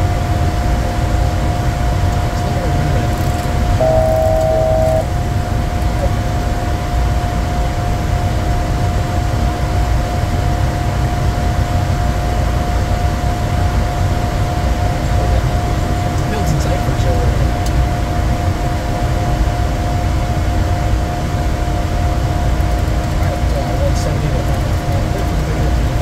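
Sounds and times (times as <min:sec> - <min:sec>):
constant hum tone: 0:00.0 - 0:26.0
jet cockpit engine rumble: 0:00.0 - 0:26.0
electronic two-note tone: 0:03.8 - 0:05.1.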